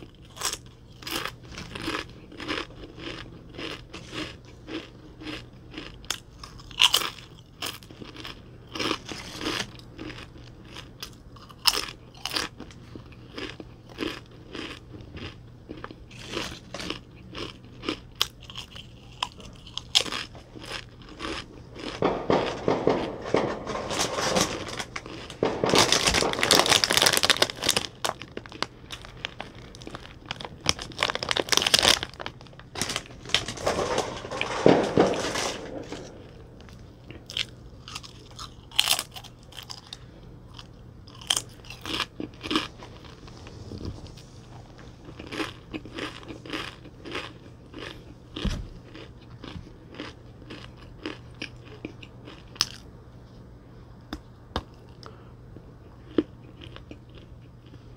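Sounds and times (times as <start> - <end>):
plastic chip bag crinkling: 0.0 - 40.0, 40.6 - 43.5
crunching tortilla chips: 0.0 - 52.9, 56.0 - 57.8.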